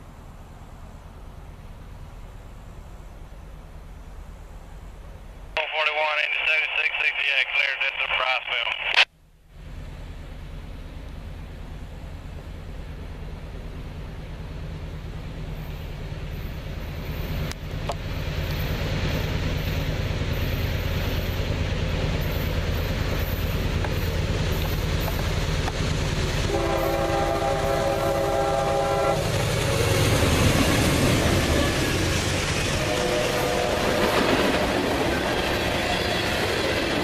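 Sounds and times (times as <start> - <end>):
diesel locomotive engine rumble: 0.0 - 37.0
train wheel noise: 9.8 - 37.0
train horn blast: 26.5 - 29.4, 32.7 - 34.7.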